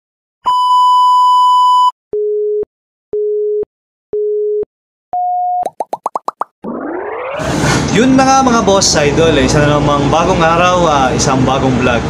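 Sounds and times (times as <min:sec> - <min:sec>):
long high electronic beep: 0:06.6 - 0:07.6.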